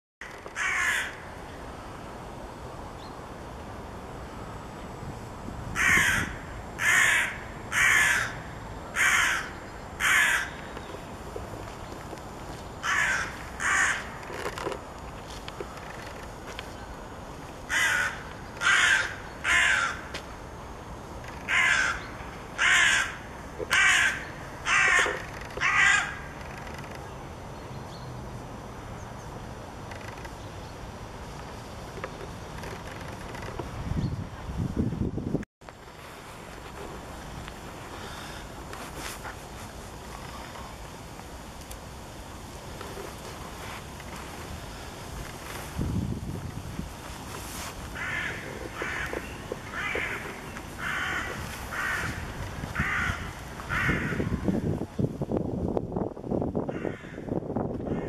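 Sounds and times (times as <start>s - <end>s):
crow cawing: 0.2s - 1.3s, 5.8s - 10.7s, 12.8s - 14.4s, 17.7s - 20.2s, 21.4s - 26.4s, 48.0s - 54.6s, 56.7s - 58.0s.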